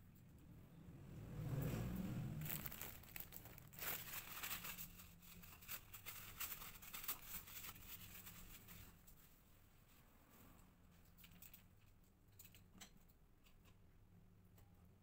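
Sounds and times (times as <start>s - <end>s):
paper towels crinkling: 2.2s - 9.0s.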